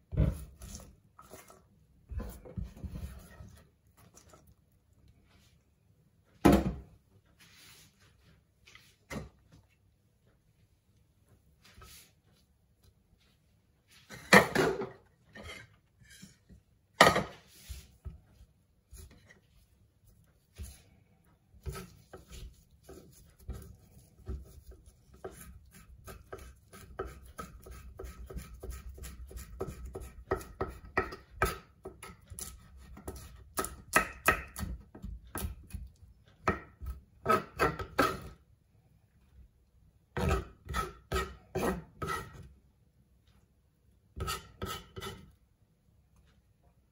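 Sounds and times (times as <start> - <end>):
knife chopping on wooden board: 21.6 - 38.3.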